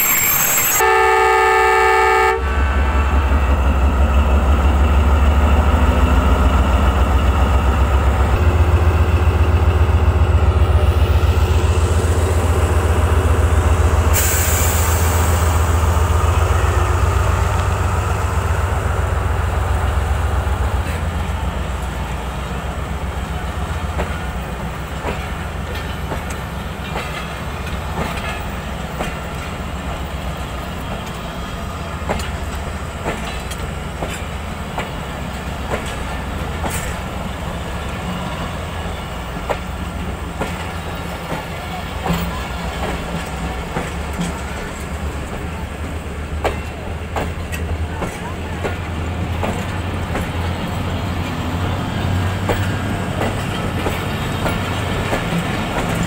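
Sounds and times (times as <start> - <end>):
train coaches rumbling: 0.0 - 56.0
wheels clacking over rail joints: 16.8 - 56.0.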